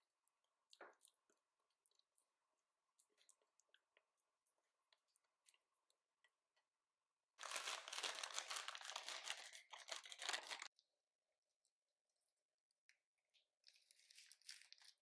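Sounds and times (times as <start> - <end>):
plastic bag crinkling: 7.4 - 10.7, 13.9 - 15.0.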